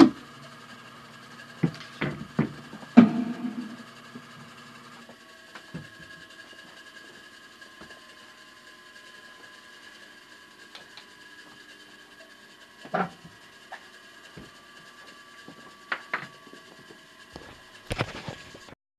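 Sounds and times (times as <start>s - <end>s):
quiet steady hum: 0.1s - 4.6s.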